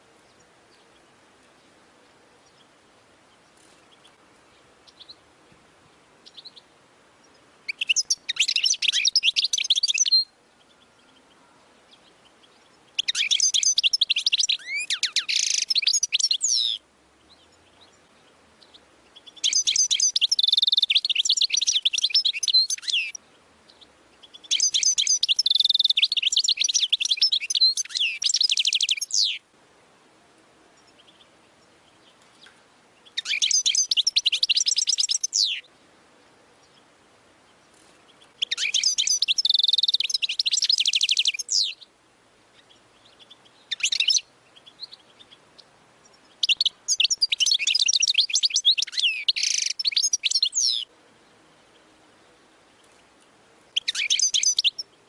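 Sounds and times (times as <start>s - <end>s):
faint bird chirps: 0.0s - 5.4s, 6.2s - 29.5s, 30.2s - 55.0s
bird twittering and trilling: 6.2s - 29.4s, 30.8s - 35.7s, 37.5s - 41.9s, 42.5s - 50.9s, 53.7s - 55.0s.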